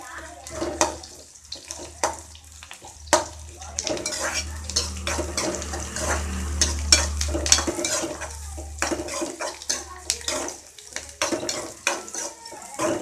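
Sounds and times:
food sizzling in hot oil: 0.0s - 13.0s
metal spoon scraping pan: 3.1s - 13.0s.

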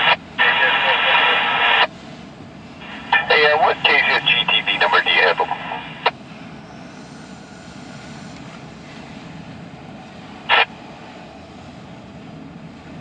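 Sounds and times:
scanner radio burst: 0.0s - 1.9s, 2.8s - 6.1s, 10.4s - 10.7s.

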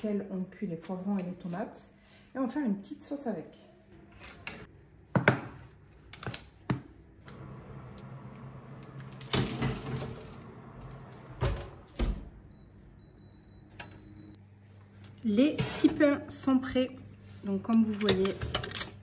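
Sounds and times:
steady low oven hum: 6.8s - 19.0s
baking tray scraping oven rack: 7.4s - 11.8s.

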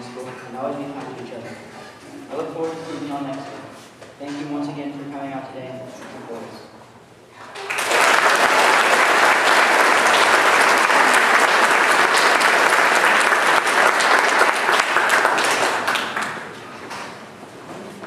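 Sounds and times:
audience applauding: 7.5s - 16.7s.

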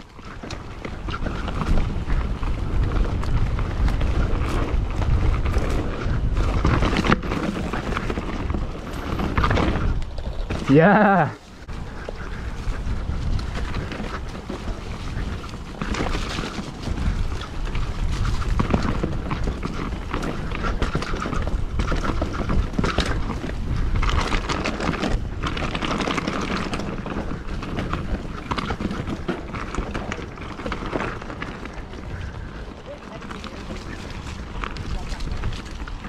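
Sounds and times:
bike rattling and knocking: 0.0s - 36.0s
tyres on dirt: 0.0s - 36.0s
wind buffeting microphone: 0.0s - 36.0s.

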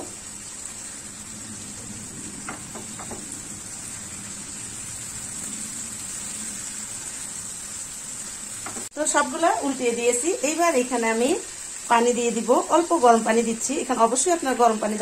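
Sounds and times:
sauce sizzling in pan: 0.0s - 15.0s
spatula taps: 8.6s - 8.9s.

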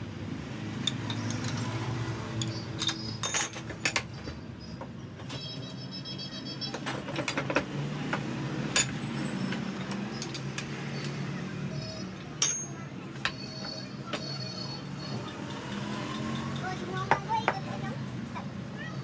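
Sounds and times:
metal clinking and knocking: 2.4s - 4.3s, 8.7s - 10.7s, 12.4s - 13.5s
sharp metal clanks: 12.4s - 13.4s.

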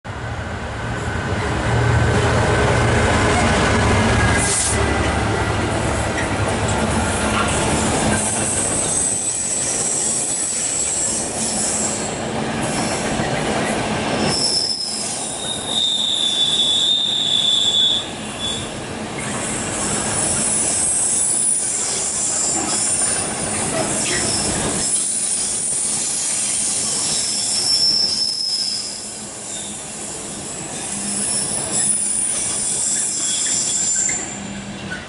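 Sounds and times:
train wheels rumbling: 0.2s - 35.0s
wheel squeals: 14.2s - 30.0s, 30.8s - 34.5s.

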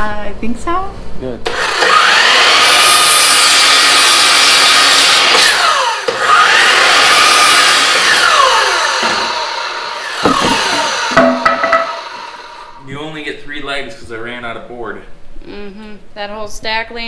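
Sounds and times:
miter saw motor whining: 1.5s - 12.8s
knock: 10.2s - 12.0s.

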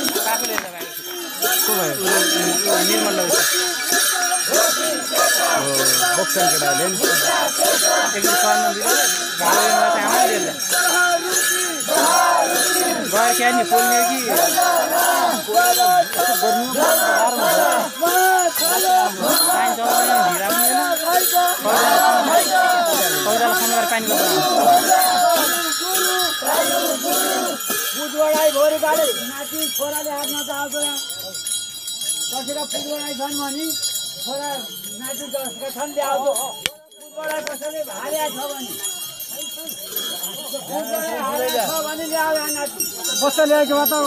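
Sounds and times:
crowd of men chanting: 0.0s - 30.4s, 40.0s - 44.0s
bells jingling: 0.0s - 44.0s.

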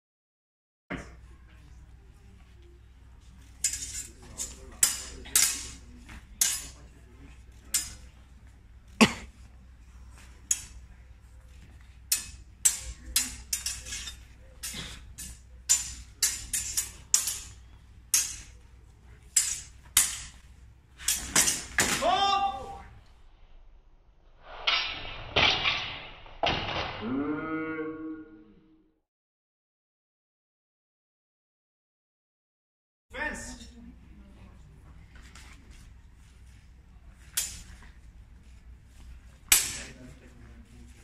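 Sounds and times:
sword blades clashing: 3.6s - 6.9s, 7.6s - 8.1s, 10.5s - 10.8s, 12.1s - 18.6s, 19.3s - 20.4s, 21.0s - 22.7s, 24.6s - 27.1s, 37.3s - 37.8s, 39.5s - 40.0s.

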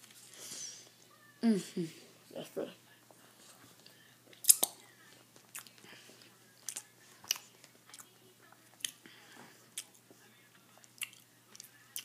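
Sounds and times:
chewing sandwich: 3.4s - 9.0s, 9.7s - 12.0s
wet mouth clicks and smacks: 4.4s - 4.8s.

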